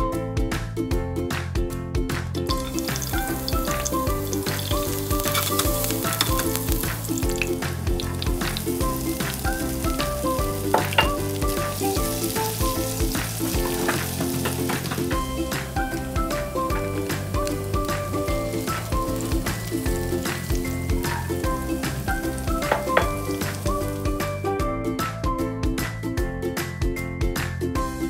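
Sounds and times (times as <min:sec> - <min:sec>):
background music: 0:00.0 - 0:28.0
garlic sizzling in hot oil: 0:02.5 - 0:24.4.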